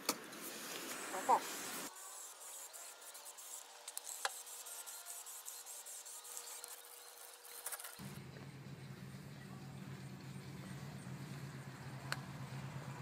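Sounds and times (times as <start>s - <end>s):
low hum: 8.0s - 13.0s.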